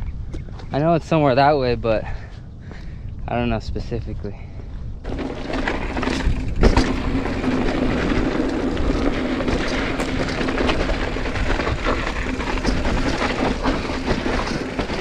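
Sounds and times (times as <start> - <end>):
bike tyres on dirt: 0.0 - 15.0
wind on microphone: 0.0 - 15.0
bike rattles and knocks: 5.0 - 15.0.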